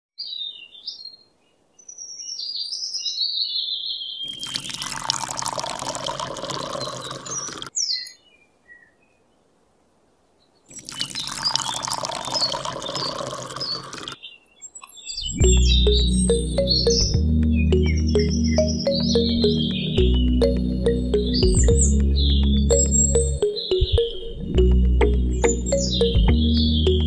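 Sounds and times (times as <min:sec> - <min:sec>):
bird chirps: 0:00.2 - 0:04.6, 0:06.5 - 0:09.3, 0:10.4 - 0:27.0
water pouring into a tub: 0:04.3 - 0:07.7, 0:10.7 - 0:14.2.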